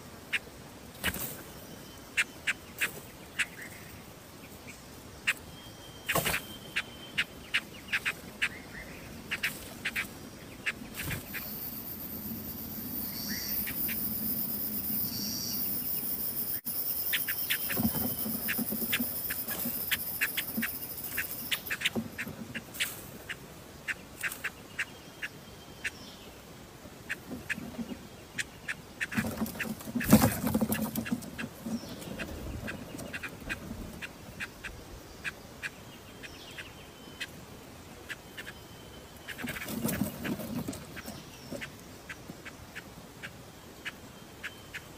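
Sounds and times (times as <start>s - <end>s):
steady high hiss: 0.0s - 29.2s
nestlings chirping: 5.2s - 23.0s, 38.1s - 41.7s.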